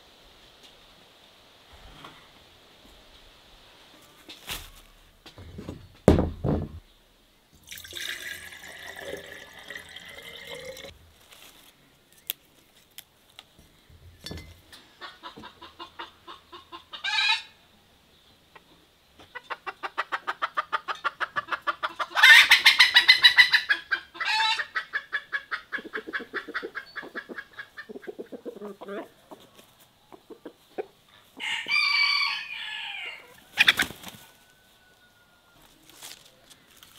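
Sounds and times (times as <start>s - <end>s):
loud thump: 6.0s - 6.8s
chickens clucking: 14.7s - 17.6s, 18.4s - 31.8s, 32.6s - 35.8s.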